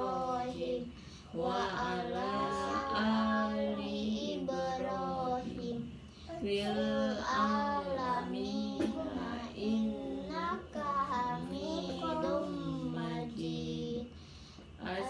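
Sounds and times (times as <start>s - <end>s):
girl chanting prayer: 0.0s - 15.0s.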